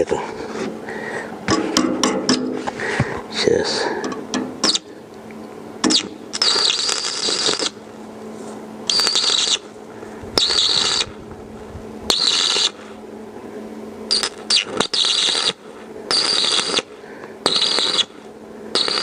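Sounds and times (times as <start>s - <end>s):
welding arc crackling and hissing: 5.9s - 7.8s, 8.9s - 13.0s, 14.1s - 19.0s.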